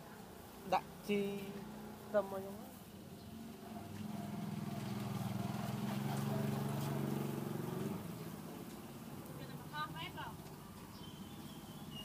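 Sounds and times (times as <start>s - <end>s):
motor engine running: 3.6s - 8.6s.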